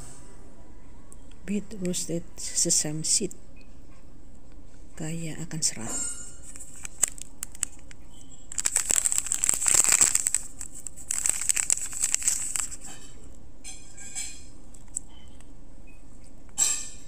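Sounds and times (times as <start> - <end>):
plastic wrapper crinkling: 6.4 - 13.4, 14.7 - 15.1.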